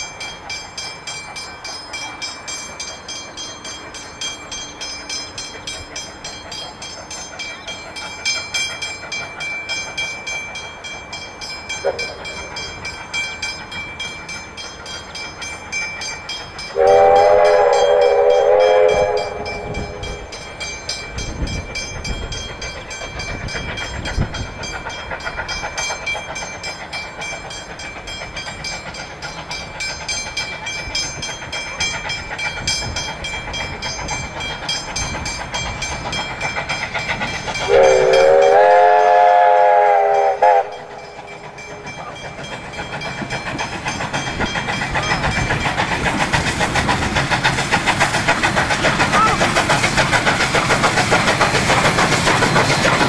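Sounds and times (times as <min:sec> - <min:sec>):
steam locomotive exhaust beating: 0:00.0 - 0:53.0
steam whistle blasts: 0:11.8 - 0:12.4, 0:16.7 - 0:20.3, 0:37.7 - 0:41.2.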